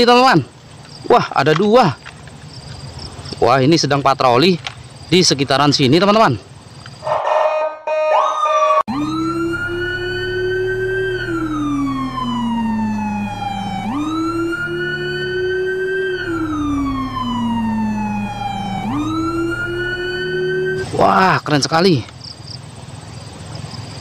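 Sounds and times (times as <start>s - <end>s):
police siren wailing: 7.9s - 21.4s
steady low hum: 8.9s - 21.0s.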